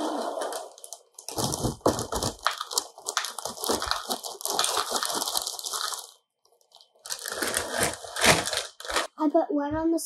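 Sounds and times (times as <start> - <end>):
cereal pouring into a bowl: 2.3 - 6.2.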